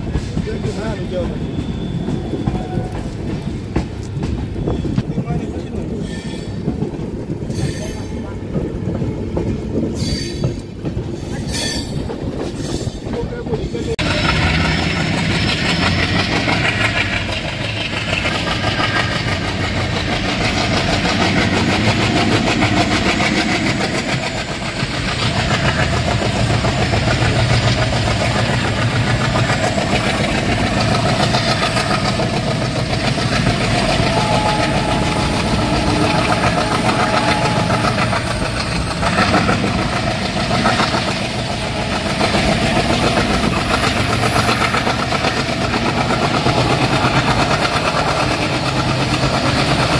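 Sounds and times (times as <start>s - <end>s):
diesel locomotive chugging: 0.0s - 49.9s.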